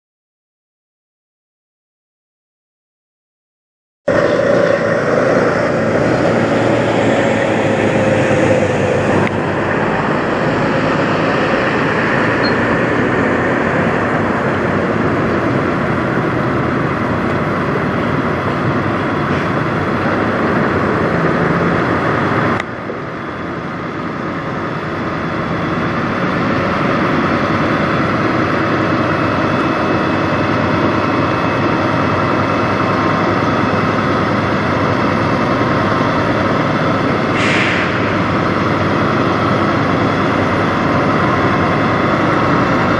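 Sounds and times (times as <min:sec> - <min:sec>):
truck diesel engine running: 0:04.1 - 0:42.9.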